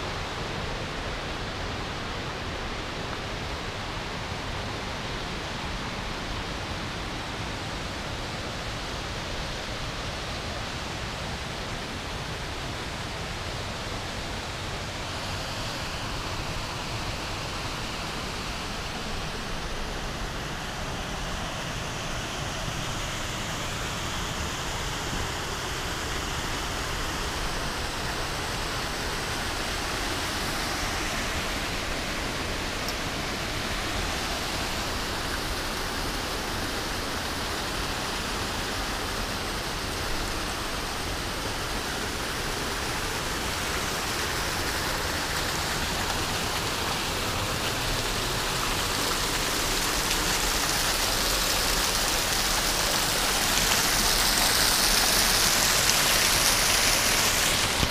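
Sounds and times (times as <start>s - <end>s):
waterfall splashing into pool: 13.3s - 57.9s.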